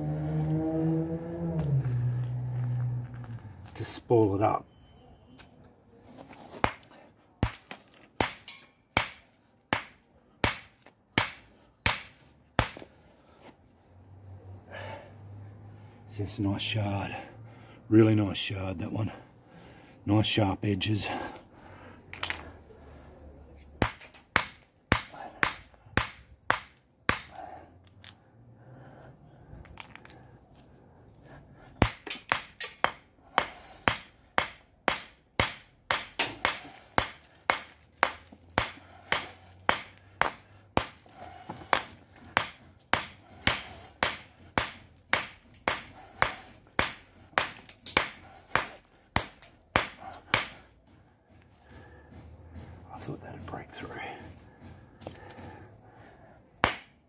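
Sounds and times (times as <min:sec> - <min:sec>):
hammer striking rock: 0:07.4 - 0:12.9, 0:23.8 - 0:27.4, 0:31.8 - 0:50.7, 0:56.6 - 0:56.9.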